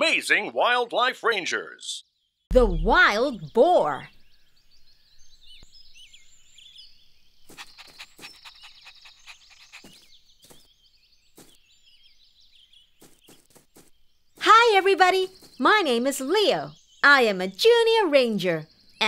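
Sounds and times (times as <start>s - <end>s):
birds chirping: 0.0s - 19.0s
puppy panting: 7.5s - 10.1s.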